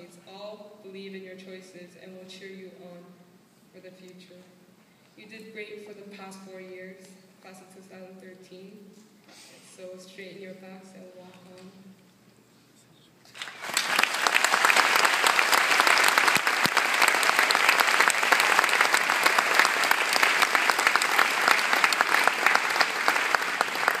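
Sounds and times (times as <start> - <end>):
audience applauding: 13.3 - 24.0.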